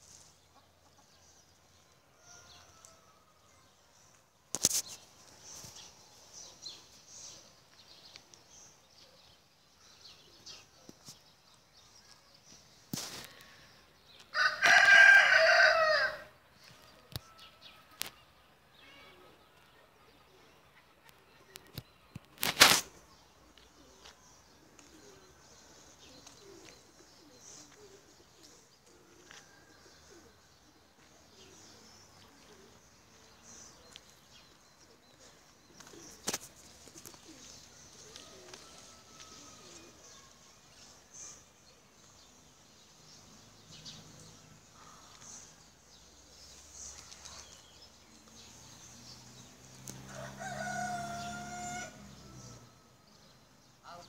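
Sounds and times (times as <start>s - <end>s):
rooster crowing: 14.3s - 16.3s, 50.1s - 52.6s.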